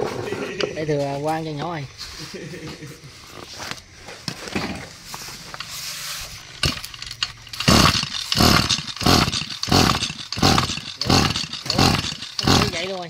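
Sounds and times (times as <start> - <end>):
recoil starter pulls: 5.5 - 13.0.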